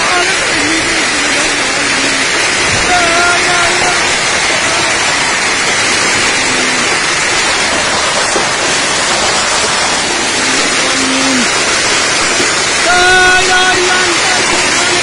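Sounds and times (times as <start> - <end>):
heavy rain: 0.0 - 15.0
wind: 0.0 - 15.0.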